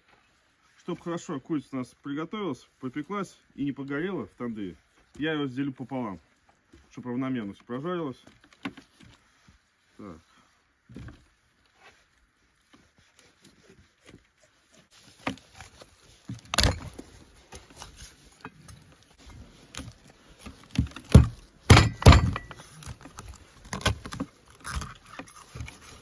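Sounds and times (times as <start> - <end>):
knife crunching through bones: 20.7 - 26.0.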